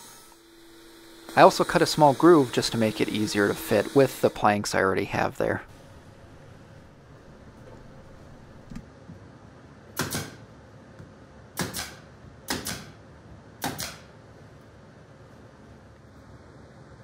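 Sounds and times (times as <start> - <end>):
nail gun firing: 10.0 - 10.4, 11.6 - 13.0, 13.6 - 14.1.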